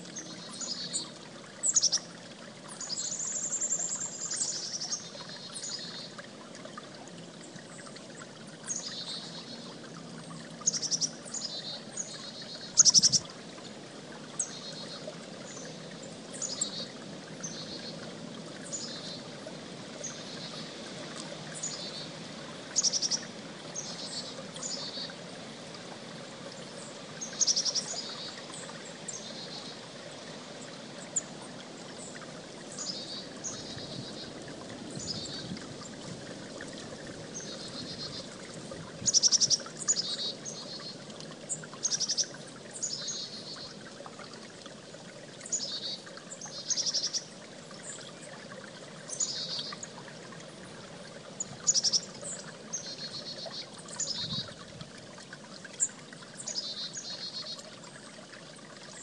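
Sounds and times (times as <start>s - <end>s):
creek running: 0.0s - 59.0s
chickadee calling: 12.8s - 13.2s.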